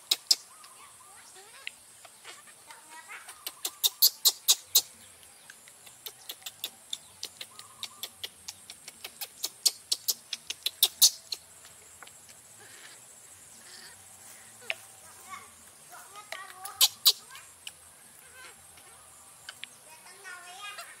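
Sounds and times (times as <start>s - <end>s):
sharp clicks: 5.5s - 11.4s, 19.4s - 19.8s.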